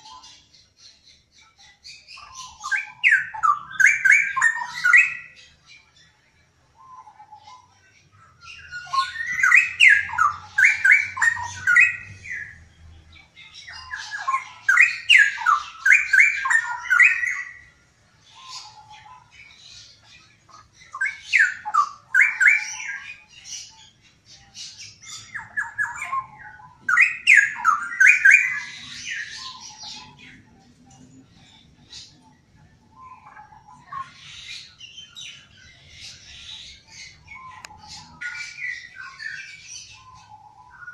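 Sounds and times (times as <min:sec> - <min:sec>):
bird singing sliding notes: 0:08.5 - 0:17.7, 0:18.3 - 0:40.9.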